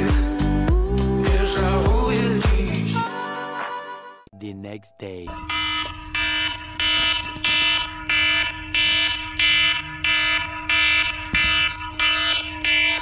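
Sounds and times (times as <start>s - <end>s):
smartphone alarm ringing: 5.3s - 13.0s.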